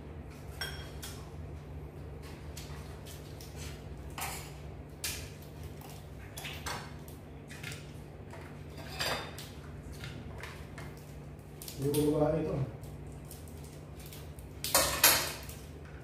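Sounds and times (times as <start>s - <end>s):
crab shells cracking: 10.3s - 15.9s.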